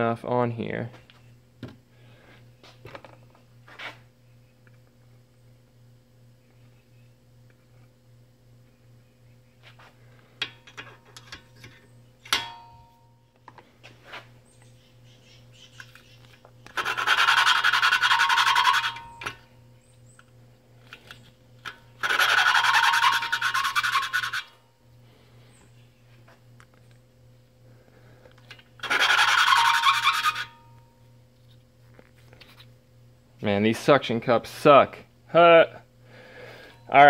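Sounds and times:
steady low hum: 0.0s - 37.0s
sharp ringing click: 12.3s - 13.2s
gritty valve grinding: 16.6s - 19.4s, 20.8s - 24.6s, 28.4s - 30.8s.

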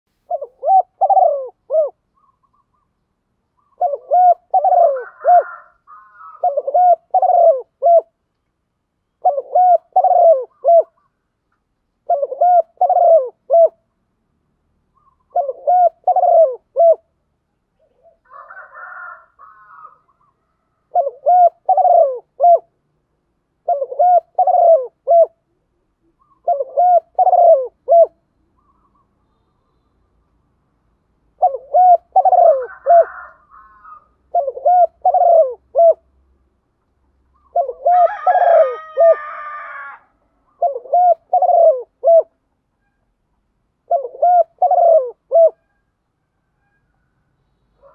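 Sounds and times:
dove cooing: 0.2s - 2.9s, 3.6s - 8.2s, 9.2s - 11.2s, 12.0s - 13.9s, 15.0s - 17.1s, 17.8s - 22.8s, 23.6s - 29.0s, 31.3s - 36.1s, 37.4s - 42.4s, 43.8s - 45.9s.

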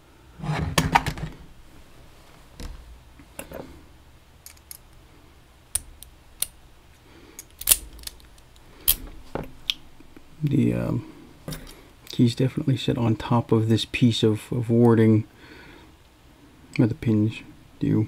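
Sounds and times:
metal clicks from lockpicking: 7.4s - 9.0s.

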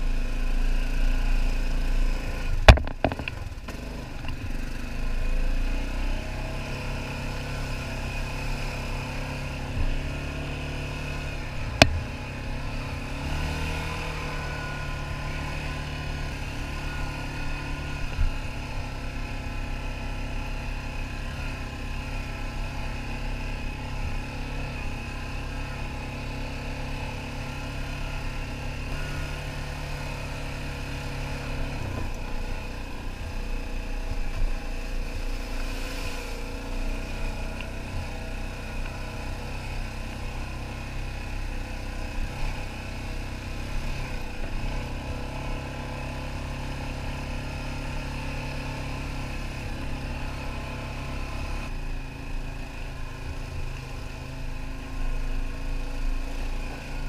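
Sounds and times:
quad bike engine running: 0.0s - 57.0s
splash through muddy puddle: 35.4s - 36.7s.

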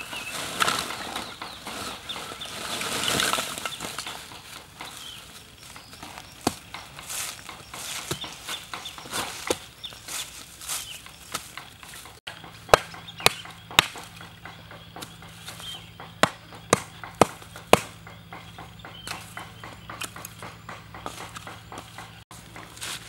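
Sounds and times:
charcoal chopped in metal bucket: 12.6s - 14.2s.

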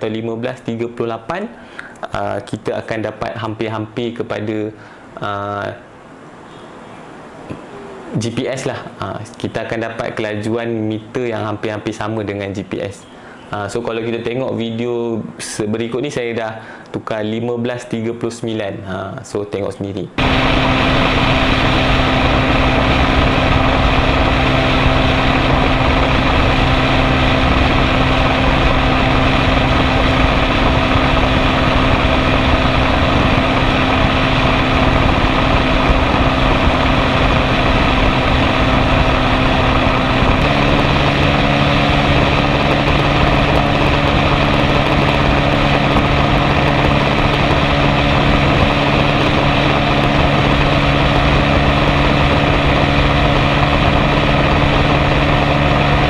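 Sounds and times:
motorcycle engine at high revs: 20.2s - 56.0s.

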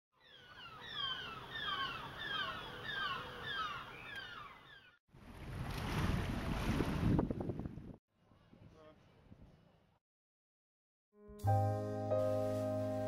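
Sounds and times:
birds chirping: 0.2s - 5.0s
wind buffeting microphone: 5.4s - 8.7s.

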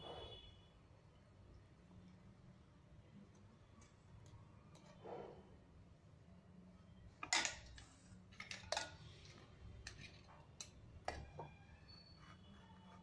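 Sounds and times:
metal spoon clinking on steel pots: 7.2s - 11.3s.

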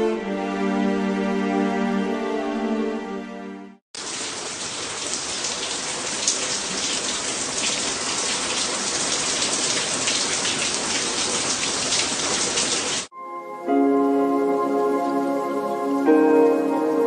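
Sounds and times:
water splashing from burst pipe: 4.0s - 13.1s.

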